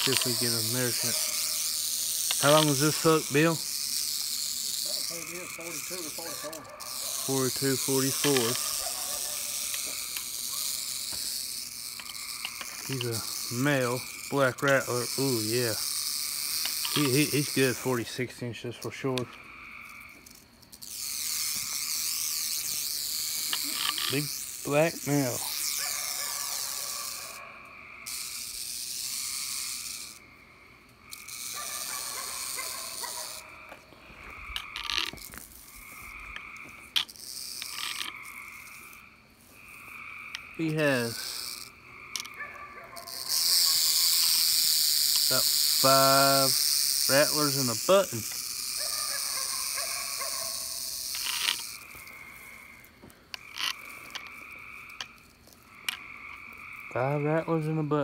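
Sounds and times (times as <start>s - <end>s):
sharp clicks: 0.0s - 15.0s, 40.3s - 52.2s
night insect chorus: 0.0s - 58.0s
rattlesnake rattling: 0.0s - 58.0s.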